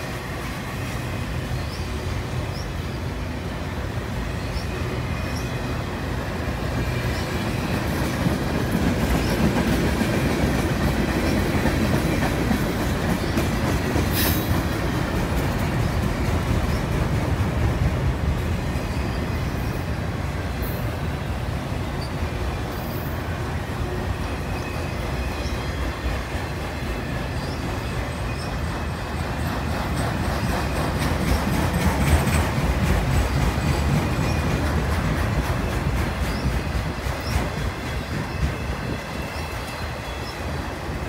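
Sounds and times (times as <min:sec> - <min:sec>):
train wheels rumbling on rail: 0:00.0 - 0:41.0.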